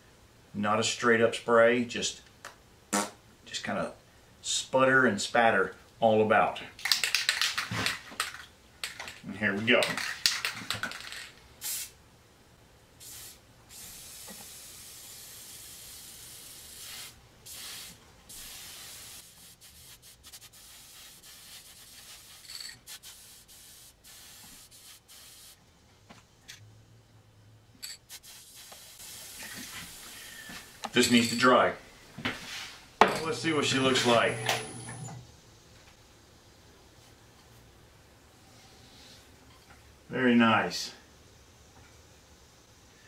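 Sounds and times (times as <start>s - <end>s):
spray paint can hissing: 11.6s - 12.0s, 13.0s - 25.6s, 27.8s - 30.2s.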